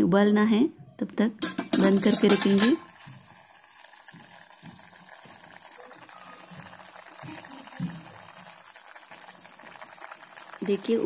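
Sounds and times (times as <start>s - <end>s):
gravy bubbling in a pot: 1.8s - 11.0s.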